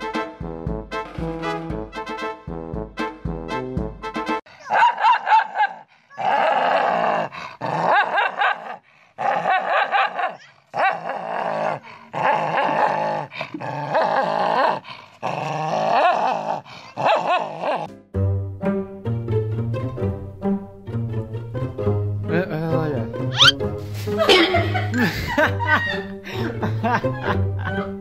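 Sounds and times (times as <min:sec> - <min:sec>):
dog barking: 0:04.6 - 0:05.9, 0:07.9 - 0:08.8, 0:09.4 - 0:11.0, 0:17.0 - 0:17.9
dog snarling and growling: 0:06.1 - 0:17.9.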